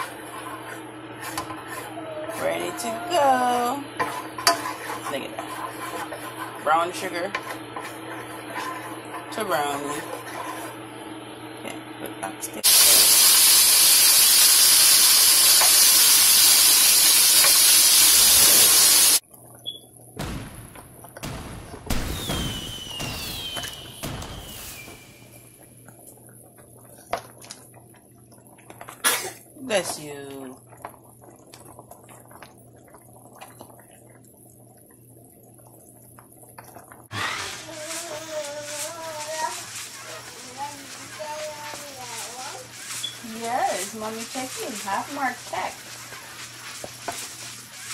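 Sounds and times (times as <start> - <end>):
wooden spoon stirring: 0.0 - 11.9, 37.4 - 47.9
stew simmering with pops: 0.0 - 21.2, 21.8 - 37.1, 37.7 - 47.9
meat sizzling in a pan: 12.6 - 19.2, 37.1 - 47.9.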